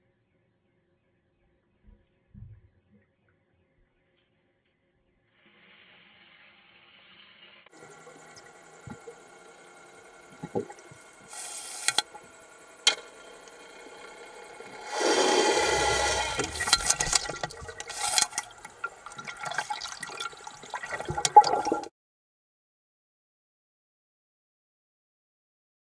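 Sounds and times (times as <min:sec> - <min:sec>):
faint steady hum: 0:07.7 - 0:21.9
underwater water rushing and bubbling: 0:07.7 - 0:21.9.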